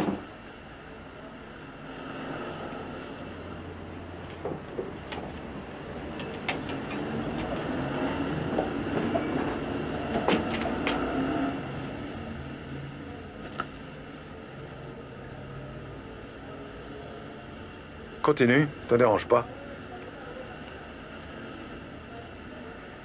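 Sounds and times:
passing vehicle rumble: 1.5 - 13.4
sharp clicks and knocks: 4.2 - 5.5, 6.1 - 7.7, 10.1 - 11.1.

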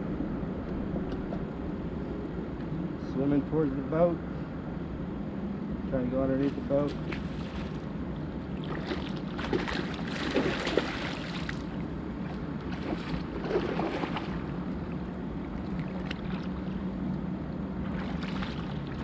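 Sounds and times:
steady low hum: 0.0 - 19.0
fish splashing in water: 8.6 - 14.9, 17.8 - 19.0.

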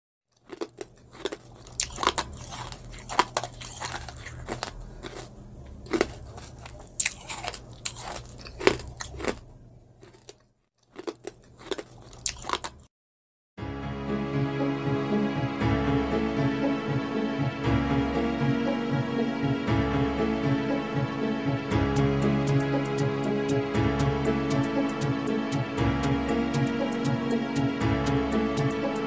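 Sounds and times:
crunchy biting and chewing: 0.3 - 12.9
music: 13.6 - 29.0.

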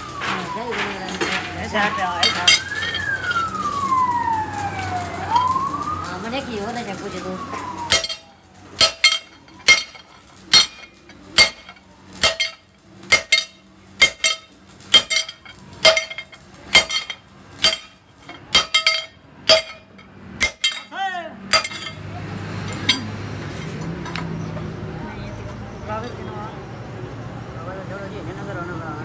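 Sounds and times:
hammer striking steel plate: 7.9 - 22.0.

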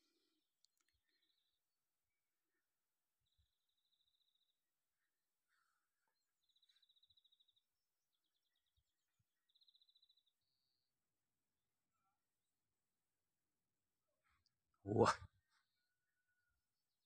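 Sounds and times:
faint buzzy songbird trills: 0.0 - 12.2.

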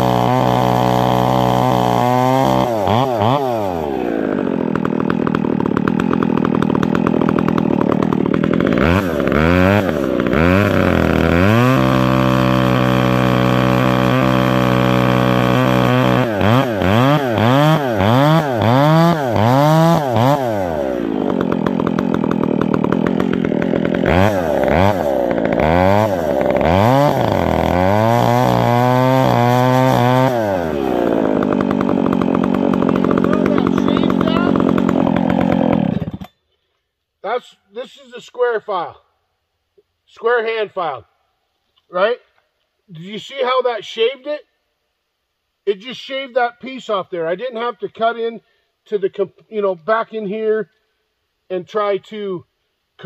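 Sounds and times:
chainsaw cutting into tree trunk: 0.0 - 36.5.

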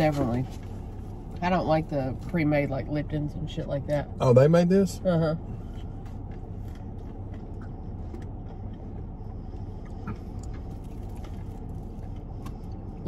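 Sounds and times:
car idling hum inside cabin: 0.0 - 13.0
faint eating clicks: 6.7 - 12.8.

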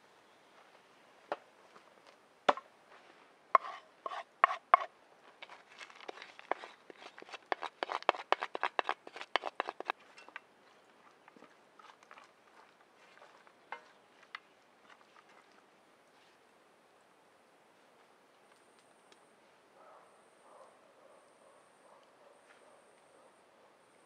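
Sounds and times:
wooden spoon knocking and scraping: 3.6 - 12.6, 13.3 - 15.0.

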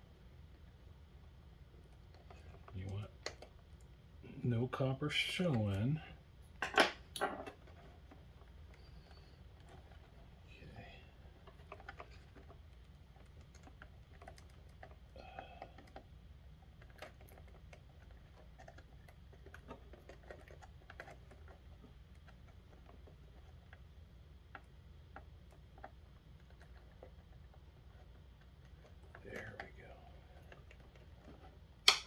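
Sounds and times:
low steady hum: 0.0 - 32.0
fingers handling wires and connectors: 11.3 - 23.9.

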